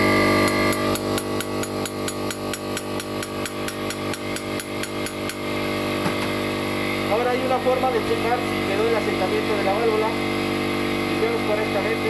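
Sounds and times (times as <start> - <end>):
valve grinding against its seat: 0.0 - 6.9.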